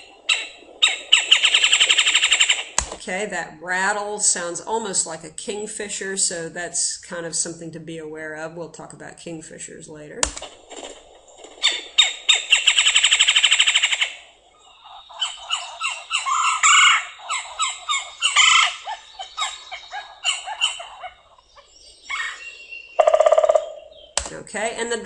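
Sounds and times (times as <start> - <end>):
woodpecker rattle call: 0.0 - 3.0, 11.5 - 24.4
woodpecker short sharp calls: 0.3 - 3.0, 11.6 - 14.2, 14.8 - 24.4.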